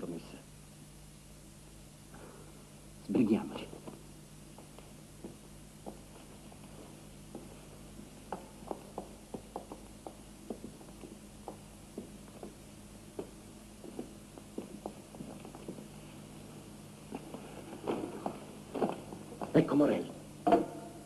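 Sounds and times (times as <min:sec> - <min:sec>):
steady low hum: 0:00.0 - 0:21.0
faint footsteps: 0:03.7 - 0:19.7.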